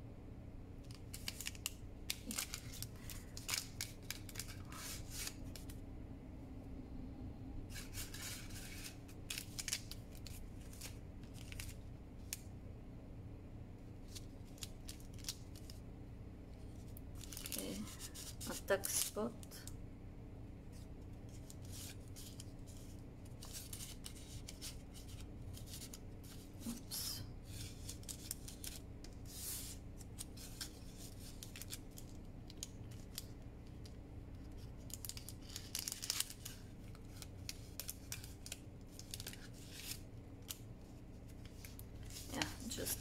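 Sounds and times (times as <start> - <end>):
paper cards rustling and sliding: 0.9 - 5.8, 7.7 - 12.4, 16.6 - 19.3, 20.7 - 33.8, 34.4 - 43.0.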